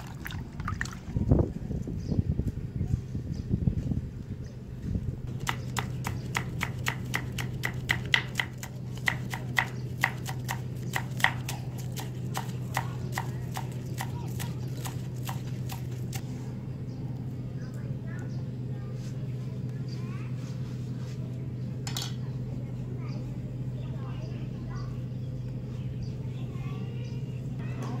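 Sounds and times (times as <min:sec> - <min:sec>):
knife chopping on wooden board: 0:05.3 - 0:16.0.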